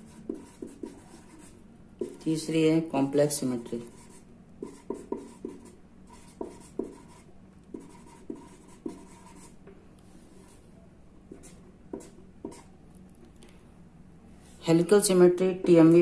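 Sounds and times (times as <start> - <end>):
marker pen writing on paper: 0.0 - 2.3, 3.8 - 9.7, 11.3 - 12.7.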